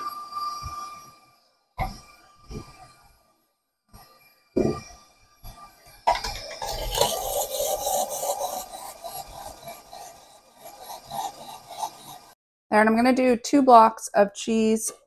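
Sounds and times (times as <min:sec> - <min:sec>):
shredder rasping grind: 0:06.1 - 0:12.4.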